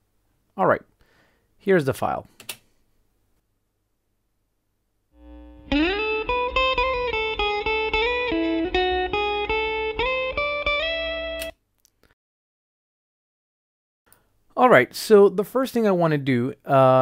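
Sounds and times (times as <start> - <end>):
mains hum buzz: 5.1 - 6.4
electric guitar notes: 5.2 - 11.5.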